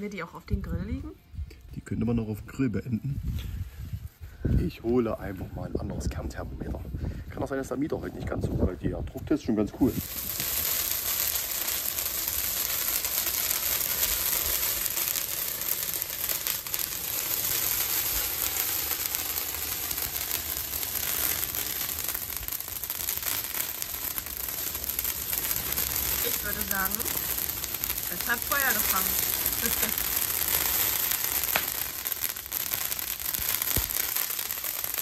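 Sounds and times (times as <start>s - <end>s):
fir branches crackling in fire: 9.4s - 35.0s.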